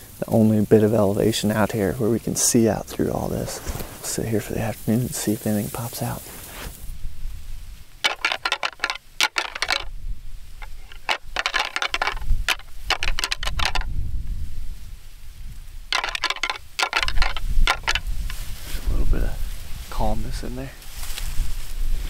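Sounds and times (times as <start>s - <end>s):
antlers clashing and rattling: 8.0s - 9.9s, 10.6s - 13.9s, 15.9s - 18.4s.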